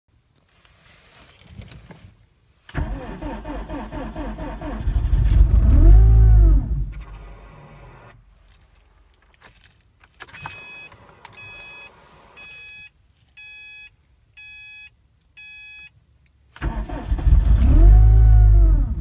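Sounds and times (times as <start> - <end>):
car engine starting and revving: 2.7 - 8.2, 16.6 - 19.0
key and ignition clicks: 9.2 - 11.6
car warning chime: 10.4 - 15.9
evenly spaced beeps: 10.4 - 15.9.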